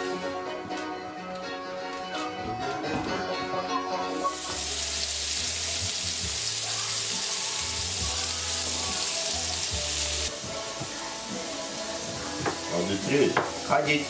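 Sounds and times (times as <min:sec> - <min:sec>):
patties sizzling in oil: 0:04.2 - 0:14.0.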